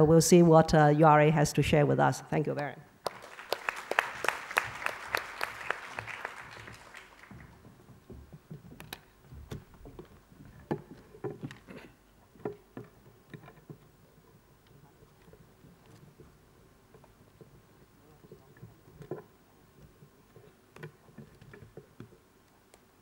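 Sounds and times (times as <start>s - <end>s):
audience applause: 3.0s - 7.6s
faint knocks and clicks: 7.3s - 22.9s.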